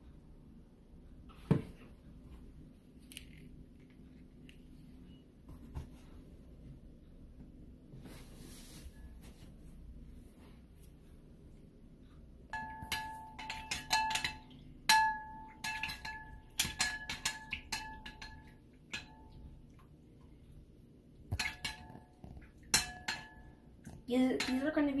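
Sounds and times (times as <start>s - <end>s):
metal fork clinking on ceramic bowl: 12.6s - 19.4s, 22.6s - 23.5s, 24.3s - 24.7s.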